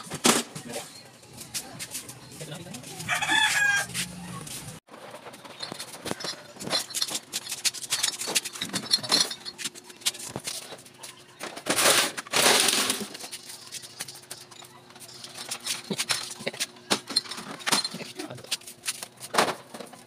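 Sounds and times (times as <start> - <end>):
glass bottles clinking in crates: 5.0 - 18.6.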